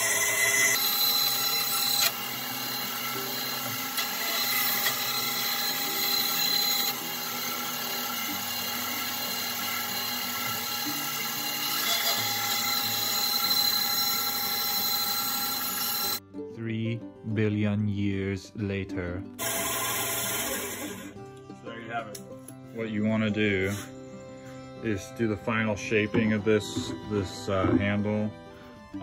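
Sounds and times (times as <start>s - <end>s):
bandsaw cutting wood: 0.0s - 16.2s, 19.4s - 21.2s, 25.5s - 28.4s.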